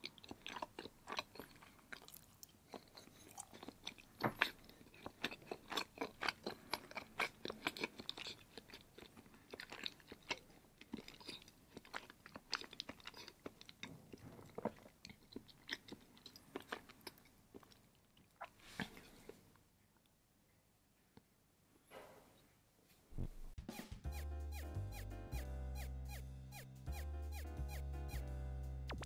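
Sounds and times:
person chewing with wet smacks: 0:00.0 - 0:20.1.

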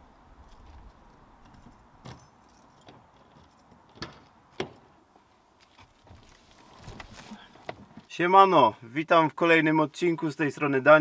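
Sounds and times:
faint metallic jingling: 0:00.4 - 0:03.7.

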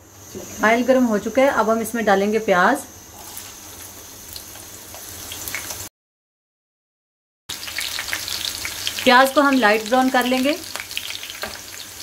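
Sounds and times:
onions sizzling in oil: 0:03.0 - 0:05.9, 0:07.5 - 0:12.0.

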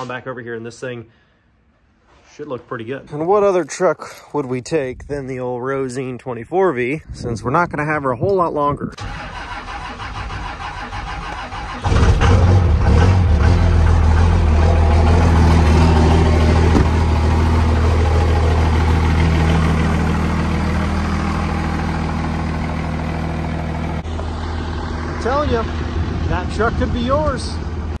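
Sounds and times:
diesel engine starting and idling: 0:08.9 - 0:28.0.

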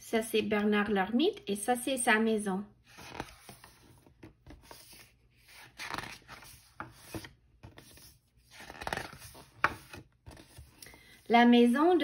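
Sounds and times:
book pages rustling: 0:02.9 - 0:11.3.

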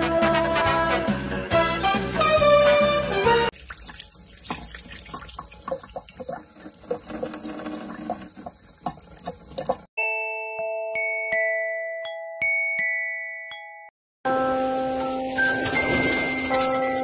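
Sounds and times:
swing music: 0:00.0 - 0:03.6
cat lapping water: 0:03.5 - 0:09.9
faucet running into sink: 0:03.5 - 0:09.9.

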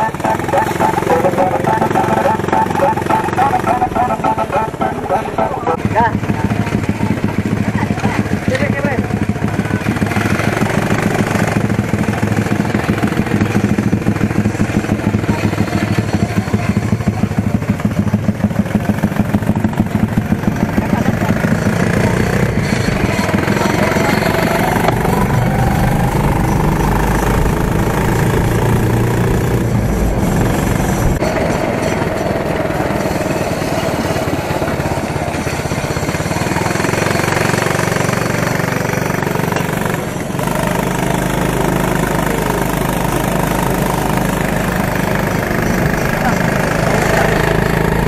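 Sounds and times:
quad bike engine running: 0:00.0 - 0:48.0.

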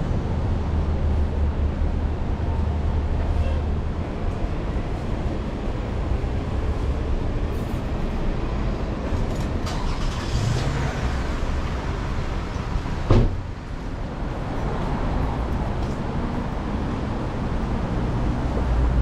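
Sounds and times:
traffic noise: 0:00.0 - 0:19.0
sharp thump: 0:13.1 - 0:13.4.

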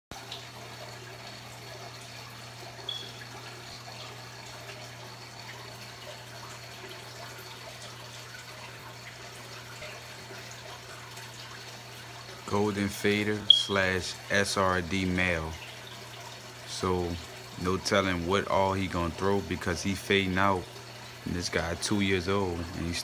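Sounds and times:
low pump hum: 0:00.1 - 0:23.0
water trickling and dripping: 0:00.1 - 0:23.0
high-pitched blip: 0:02.9 - 0:03.2.

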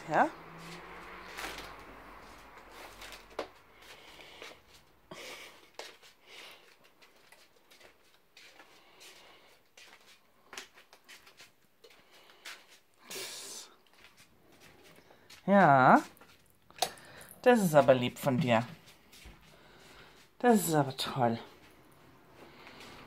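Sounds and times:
slipper footsteps on hard floor: 0:05.7 - 0:12.9, 0:13.9 - 0:16.5, 0:17.6 - 0:20.4.

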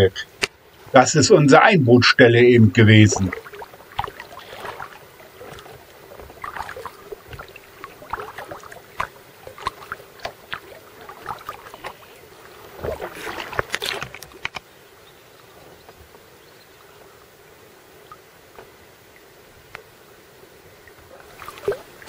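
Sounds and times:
faint steady hiss: 0:00.0 - 0:22.0
paddle splashing in water: 0:02.9 - 0:14.6, 0:20.9 - 0:22.0.

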